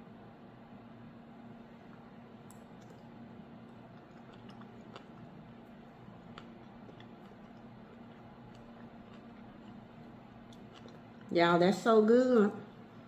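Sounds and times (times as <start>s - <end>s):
faint chewing: 1.8s - 11.8s.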